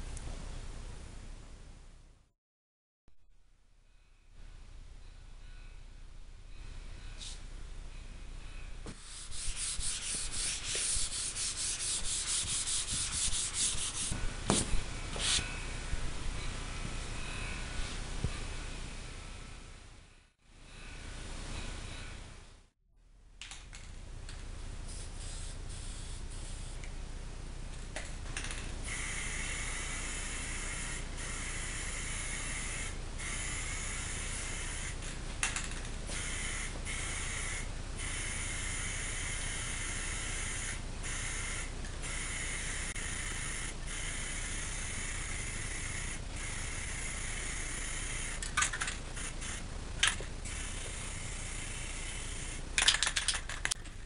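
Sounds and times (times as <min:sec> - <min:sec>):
spray paint can hissing: 0:08.9 - 0:15.4, 0:24.9 - 0:26.9, 0:28.8 - 0:53.8.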